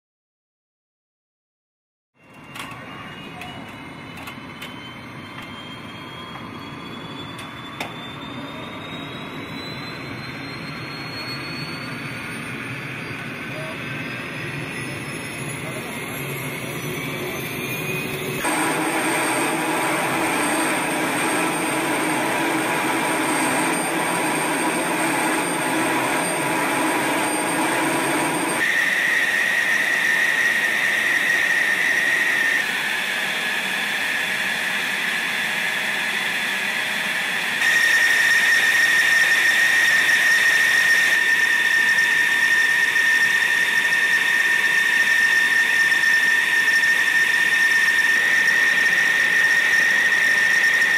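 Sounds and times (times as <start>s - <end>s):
jet engine turbine whine: 2.2s - 50.9s.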